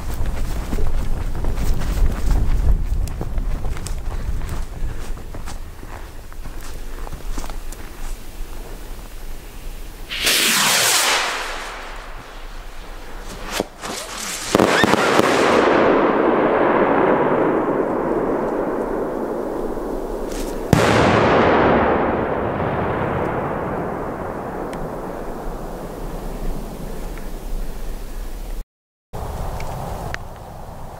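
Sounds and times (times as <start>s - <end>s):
fireworks banging: 10.1s - 26.1s.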